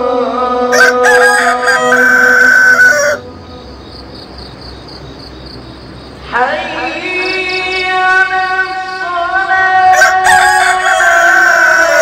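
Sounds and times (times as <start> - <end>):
rooster crowing: 0.7 - 3.3, 9.9 - 12.0
crickets chirping: 1.4 - 9.2.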